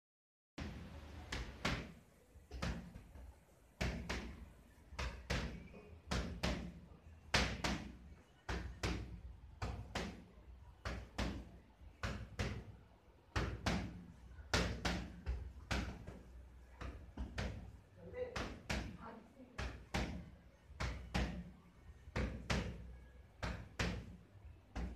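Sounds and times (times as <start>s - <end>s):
boxing gloves smacking mitts: 0.6s - 12.7s, 13.3s - 16.2s, 16.8s - 19.0s, 19.6s - 21.5s, 22.1s - 24.9s.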